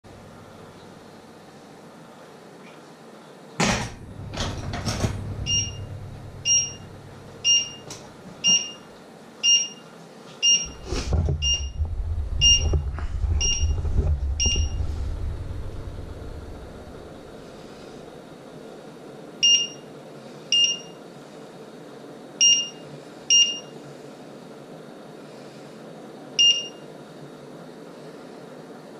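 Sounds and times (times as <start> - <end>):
low rumble: 4.0 - 7.7, 11.0 - 18.0
timer alarm beeping: 5.4 - 6.8, 7.4 - 9.8, 10.4 - 10.8, 11.4 - 11.8, 12.4 - 12.8, 13.4 - 13.8, 14.4 - 14.8, 19.4 - 19.9, 20.5 - 21.0, 22.4 - 23.7, 26.4 - 26.8.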